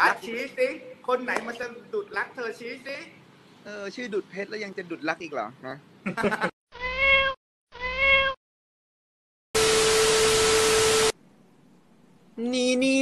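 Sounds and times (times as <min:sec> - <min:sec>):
cat meowing: 0:06.8 - 0:08.4.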